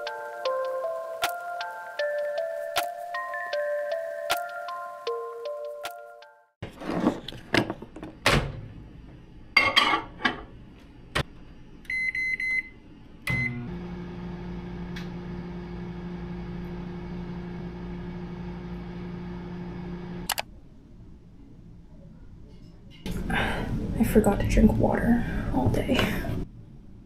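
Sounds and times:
microwave oven humming: 11.2 - 20.3.

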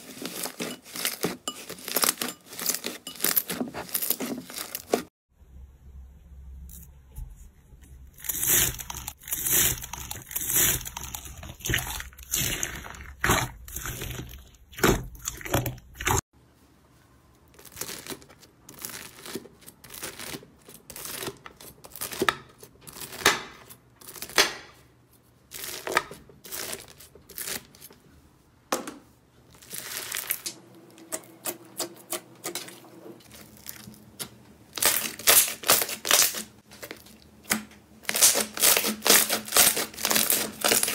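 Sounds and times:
knife crunching through beaded slime: 0.0 - 5.1, 8.1 - 16.2, 34.7 - 36.6, 38.0 - 40.9.

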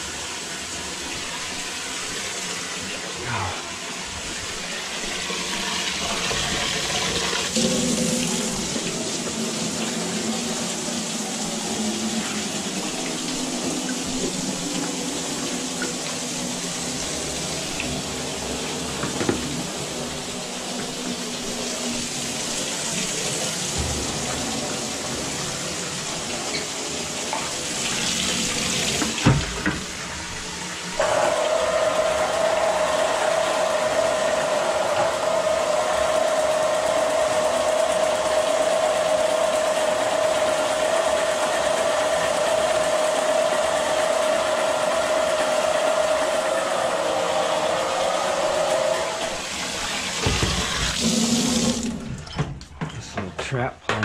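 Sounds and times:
faucet water running down drain: 0.0 - 52.6
knock: 19.0 - 19.5, 50.2 - 50.6
electric motor humming: 30.4 - 52.0.

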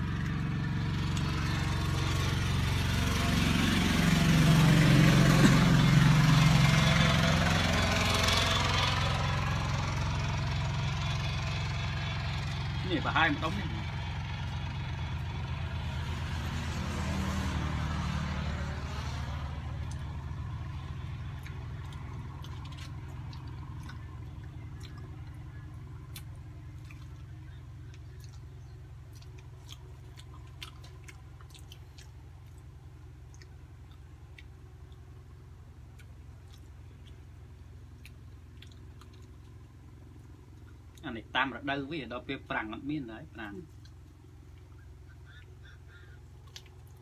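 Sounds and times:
vehicle passing by: 0.0 - 47.0
people chewing: 19.0 - 41.1, 43.6 - 47.0.

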